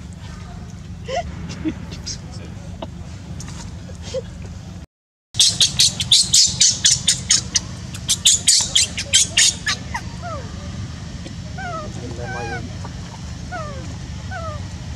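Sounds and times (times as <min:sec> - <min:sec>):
baby monkey squealing: 0:05.4 - 0:10.6, 0:11.6 - 0:12.7, 0:13.5 - 0:14.7.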